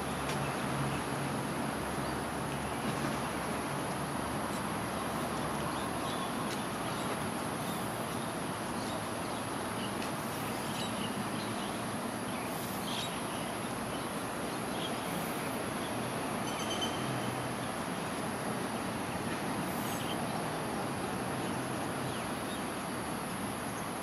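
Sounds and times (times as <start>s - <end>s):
road traffic roar: 0.0s - 24.0s.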